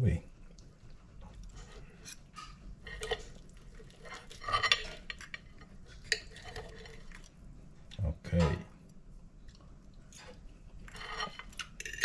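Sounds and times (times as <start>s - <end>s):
cutlery scraping a ceramic plate: 1.6s - 7.2s, 10.8s - 12.0s
cutlery clatter: 2.3s - 7.1s, 10.9s - 12.0s.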